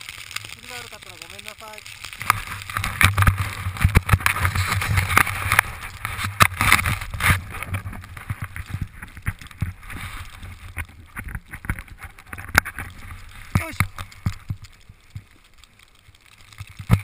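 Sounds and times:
snowboard carving through snow: 2.2 - 9.0, 9.6 - 10.8.

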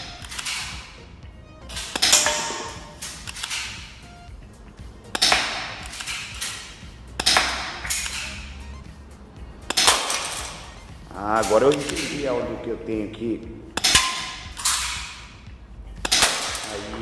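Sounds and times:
background music: 0.0 - 17.0
airsoft pistol shots: 1.7 - 4.0, 5.1 - 8.3, 16.0 - 16.7.

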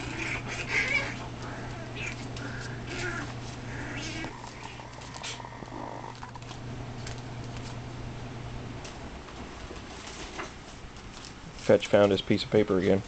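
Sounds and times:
puppies whining and yipping: 0.0 - 6.3
steady low hum: 0.0 - 13.0.

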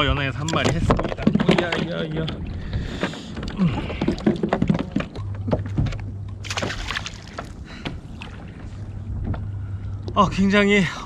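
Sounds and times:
knocks and clatter on kayak: 0.0 - 8.4
low steady hum: 0.0 - 11.0
brief splashes: 6.4 - 7.5.

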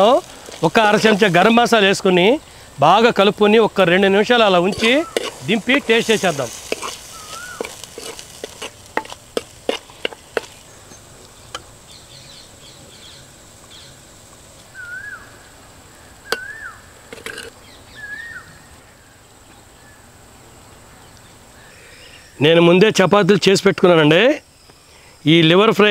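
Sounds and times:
metal spoon scraping iron pan: 4.6 - 10.6, 17.1 - 17.6
short chirp-like calls: 4.8 - 5.5, 6.9 - 7.8, 14.7 - 18.8.

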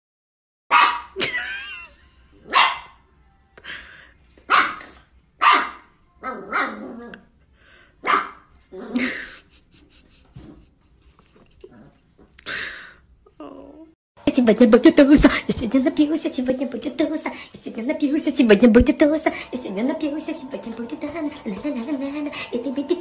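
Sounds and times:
puppy barking: 0.7 - 1.2, 2.4 - 3.0, 4.5 - 7.0, 8.0 - 8.5
puppy yip: 0.7 - 1.2, 2.5 - 3.0, 4.5 - 6.9, 8.0 - 8.4.

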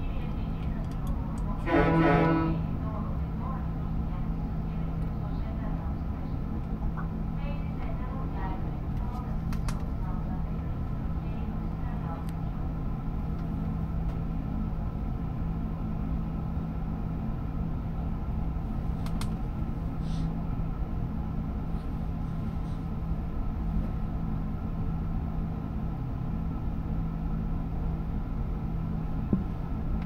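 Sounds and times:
ship engines droning: 0.0 - 9.0.

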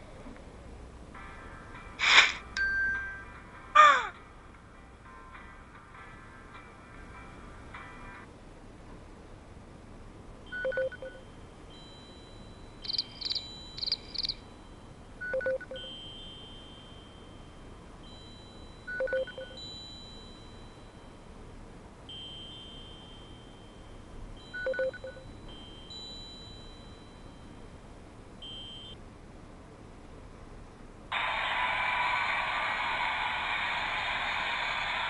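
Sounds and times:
faint steady high tones: 10.4 - 29.0
high chirps: 12.8 - 14.5.

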